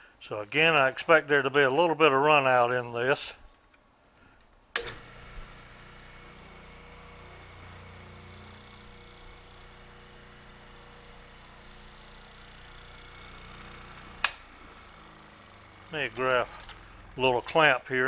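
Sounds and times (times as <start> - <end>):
electric motor humming: 4.8 - 18.0.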